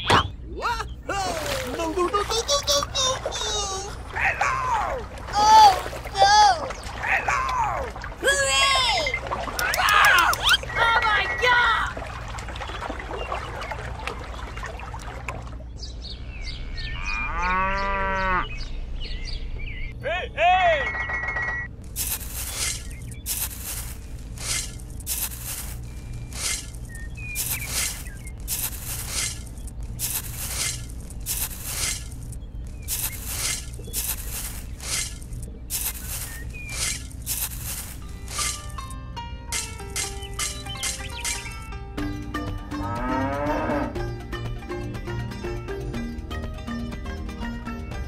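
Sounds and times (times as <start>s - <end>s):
birds chirping: 0.0s - 48.0s
cow mooing: 16.8s - 18.5s, 42.8s - 44.0s
steady low hum: 21.6s - 40.7s
faint crackling noise: 21.7s - 38.9s
toy shovel scraping wet mud: 22.0s - 32.2s, 32.8s - 38.8s.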